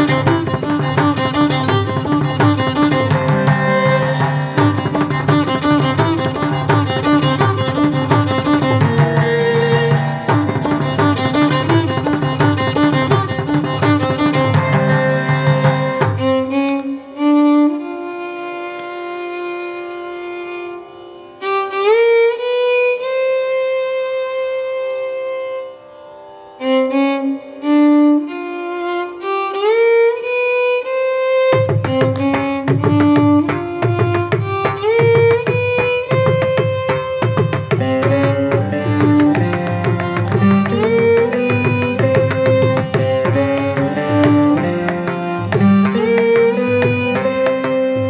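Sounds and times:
mridangam drumming: 0:00.0 - 0:16.6, 0:31.4 - 0:48.0
violin with sliding glides: 0:00.0 - 0:48.0.

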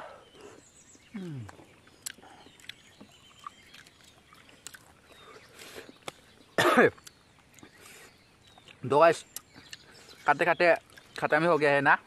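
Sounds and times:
eating clicks and smacks: 0:01.2 - 0:06.3, 0:08.4 - 0:09.9, 0:10.7 - 0:11.3
man coughing: 0:06.6 - 0:07.0.

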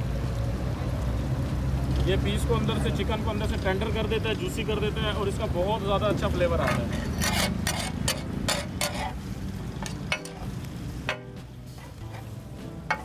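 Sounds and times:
food sizzling on a griddle: 0:00.0 - 0:13.0
metal spatulas scraping griddle: 0:06.4 - 0:13.0.

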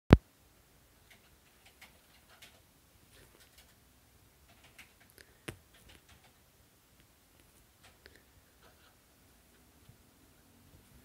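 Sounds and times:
cat claws scratching fabric: 0:04.4 - 0:06.4.

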